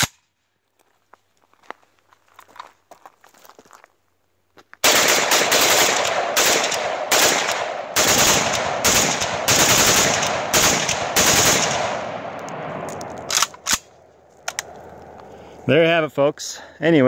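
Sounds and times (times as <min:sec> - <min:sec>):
rifle firing rapid strings: 0:04.8 - 0:12.3.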